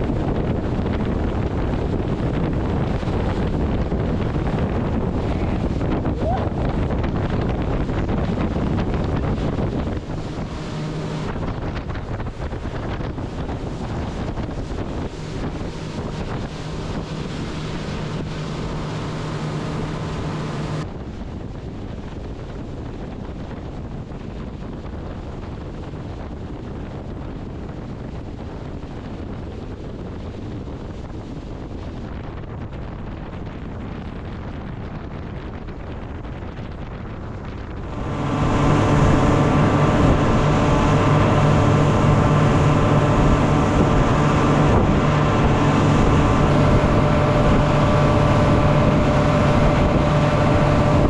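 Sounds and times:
low engine drone: 0.0s - 22.7s, 35.6s - 51.0s
water rushing past boat hull: 0.0s - 51.0s
wind on microphone: 0.0s - 51.0s.

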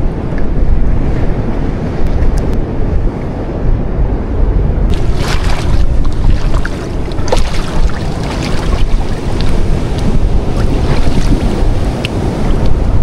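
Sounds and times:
wind rumble on microphone: 0.0s - 13.0s
sea surf washing against rocks: 4.9s - 13.0s
water splashing: 4.9s - 13.0s.

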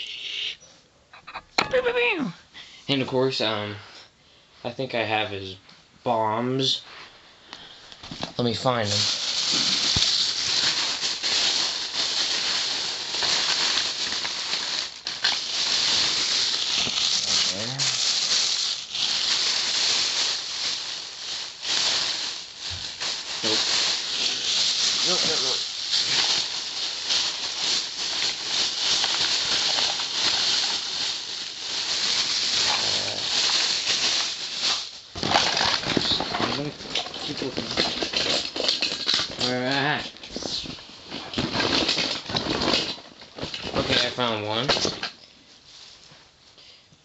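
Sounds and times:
rummaging through small toys: 8.0s - 46.1s
toys rustling and clicking: 32.0s - 45.2s.

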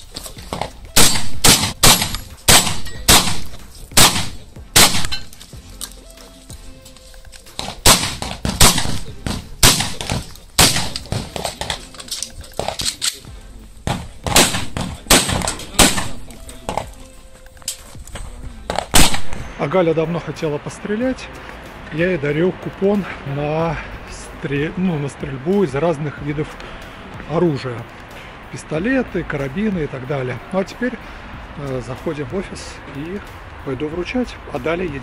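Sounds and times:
gunshots: 1.0s - 5.3s, 7.6s - 11.8s, 13.8s - 16.3s, 18.7s - 19.5s.

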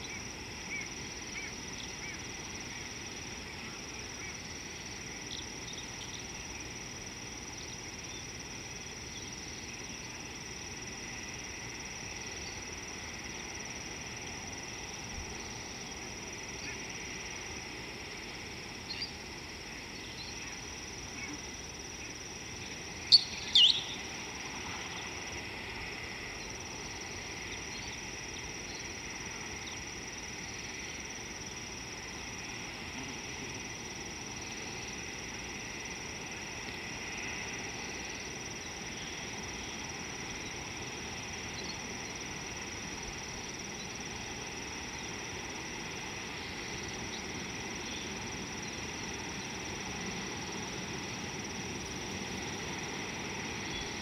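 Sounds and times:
high-pitched insect chorus: 0.0s - 54.0s
sharp bird calls: 23.0s - 24.1s.

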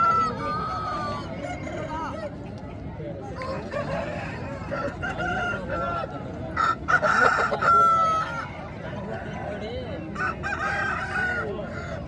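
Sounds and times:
roosters crowing: 0.0s - 1.4s, 3.4s - 8.6s, 10.2s - 12.0s.

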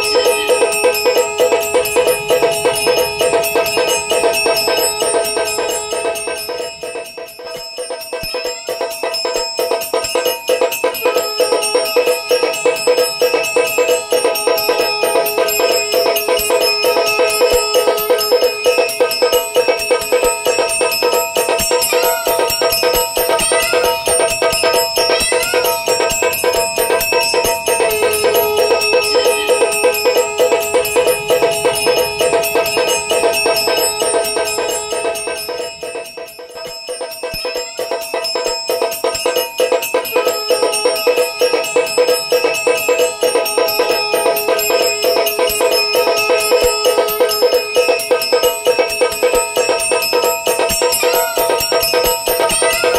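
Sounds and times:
drum beating: 0.0s - 52.9s
small bell ringing rapidly: 0.0s - 52.9s.

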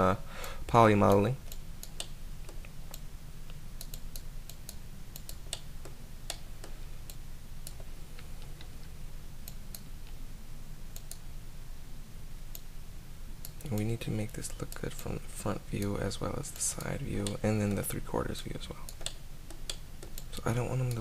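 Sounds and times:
steady low hum: 0.0s - 21.0s
keyboard and mouse clicking: 1.1s - 3.0s, 3.8s - 8.7s, 18.9s - 21.0s.

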